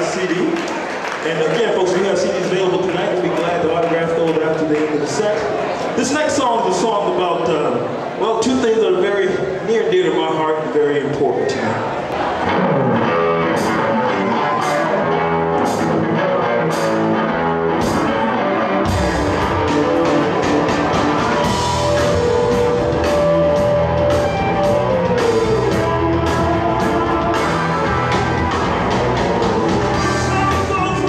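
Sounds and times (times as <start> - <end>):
bass guitar: 12.2 - 31.0
electric guitar: 12.2 - 31.0
drum beat: 18.9 - 31.0.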